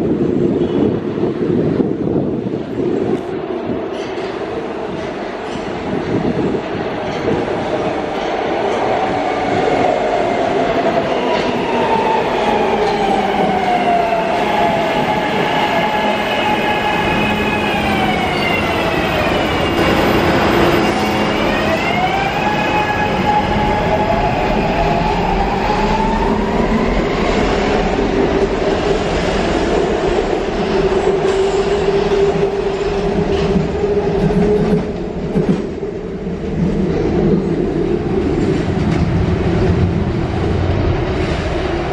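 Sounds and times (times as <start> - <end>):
rail rumble and wheel clatter: 0.0 - 41.9
electric train propulsion whine: 10.4 - 29.4.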